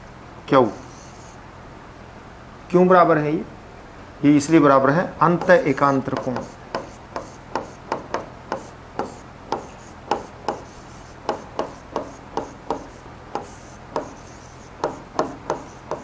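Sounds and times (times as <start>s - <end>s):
stylus tapping on glass: 11.3s - 14.1s.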